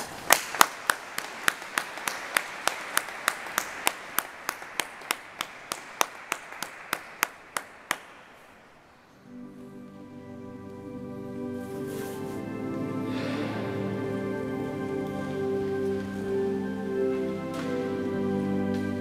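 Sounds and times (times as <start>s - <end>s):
loud close hand claps: 0.0s - 8.6s
audience applauding: 0.0s - 8.8s.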